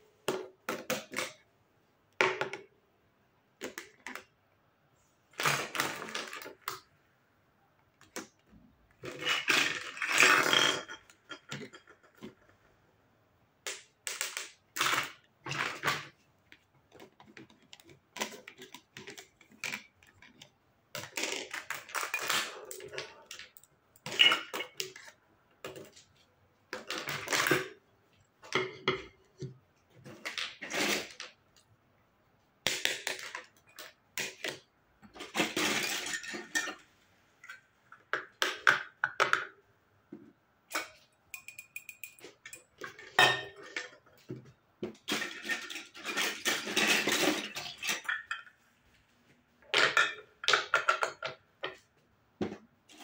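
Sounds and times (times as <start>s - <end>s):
toy dishes clattering on table: 9.0s - 12.7s, 21.0s - 26.1s, 32.7s - 36.9s, 40.7s - 48.6s, 49.7s - 51.8s.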